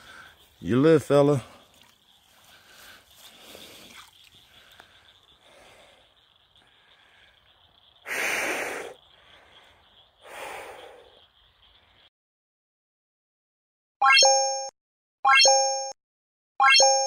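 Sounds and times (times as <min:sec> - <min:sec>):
loud breathy exhales: 0:08.0 - 0:11.2.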